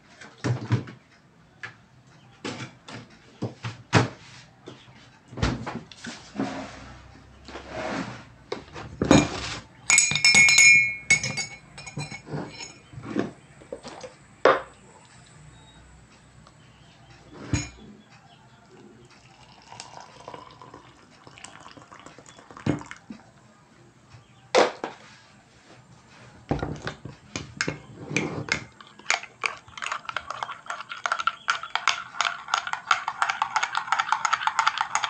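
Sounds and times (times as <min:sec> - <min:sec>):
spoon clinking in ceramic mug: 0:09.9 - 0:12.9, 0:17.6 - 0:17.8, 0:28.9 - 0:35.0.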